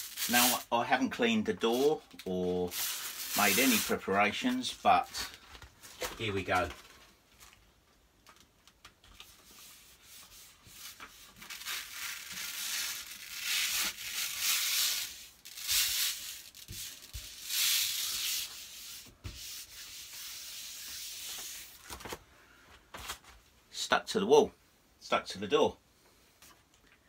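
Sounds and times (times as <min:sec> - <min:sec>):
hand rubbing paper: 0:02.6 - 0:04.1, 0:09.2 - 0:21.8.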